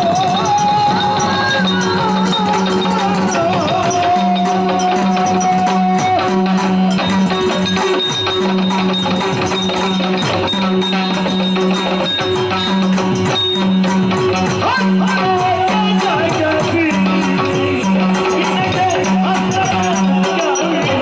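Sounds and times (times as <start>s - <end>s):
person singing melodic line: 0.0s - 7.4s
drum strokes: 0.0s - 21.0s.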